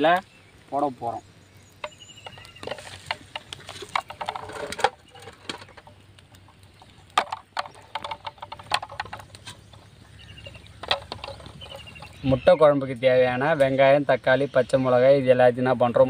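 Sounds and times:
eggs clinking on metal: 1.8s - 12.3s.

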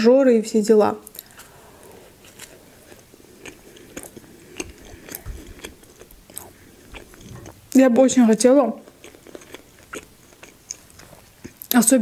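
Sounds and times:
mouth clicks: 1.0s - 7.8s
person chewing: 1.0s - 11.8s.

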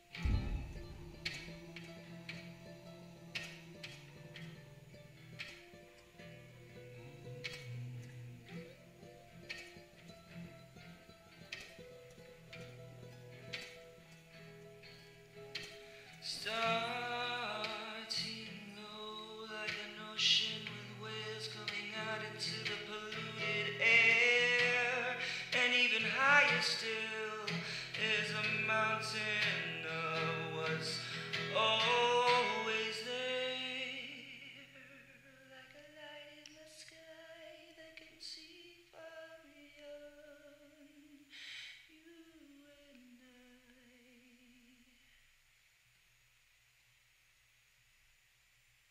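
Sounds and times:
person singing with vibrato: 0.0s - 4.6s, 16.1s - 45.2s.

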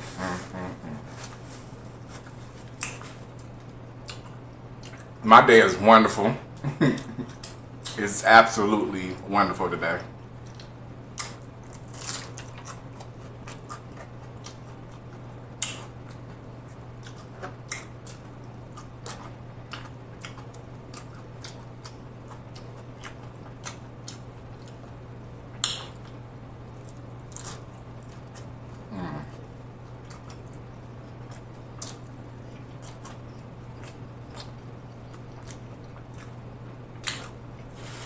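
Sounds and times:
crunching taco shell: 10.5s - 16.4s, 17.0s - 28.8s.

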